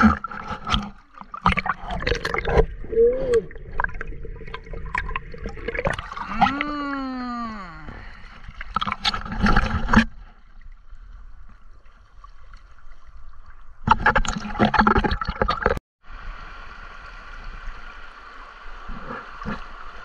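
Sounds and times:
flowing river water: 0.0s - 15.0s, 16.1s - 20.0s
water splashing: 0.0s - 15.8s.

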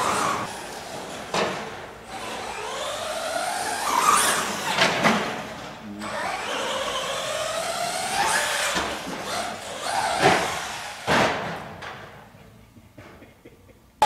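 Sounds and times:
electric rc truck motor whining: 0.0s - 1.3s, 2.0s - 11.1s
rc truck crashing knocks: 0.0s - 2.4s, 3.4s - 12.2s.

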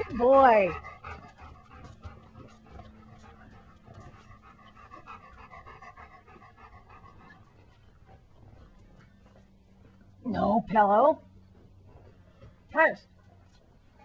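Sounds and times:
dog panting: 0.0s - 10.2s.

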